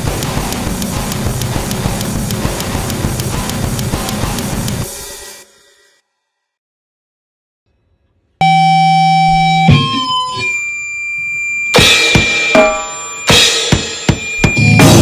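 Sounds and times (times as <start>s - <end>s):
drum kit hits and cymbal crashes: 0.0s - 6.0s, 11.8s - 15.0s.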